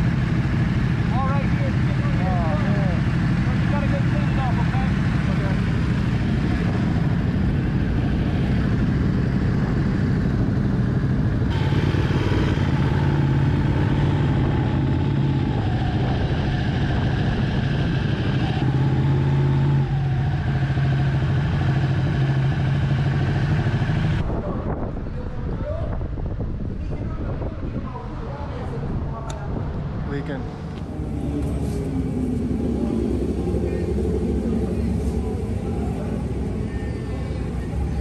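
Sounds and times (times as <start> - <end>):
motorcycle engine at low revs: 0.0 - 24.7.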